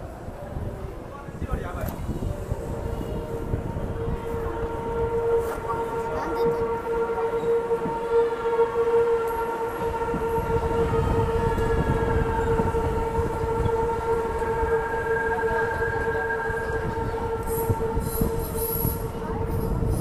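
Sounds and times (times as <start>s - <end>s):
rumble of wheels on track: 0.0s - 20.0s
train wheels squealing: 10.9s - 20.0s.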